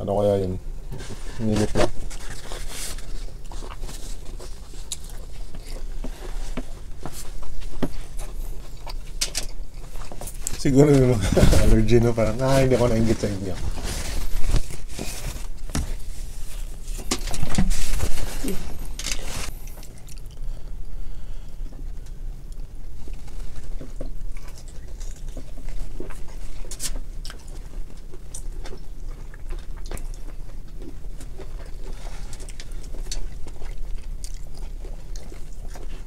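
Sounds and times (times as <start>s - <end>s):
steady low hum: 0.0s - 36.0s
chewing: 2.1s - 11.7s, 18.3s - 20.7s, 22.5s - 36.0s.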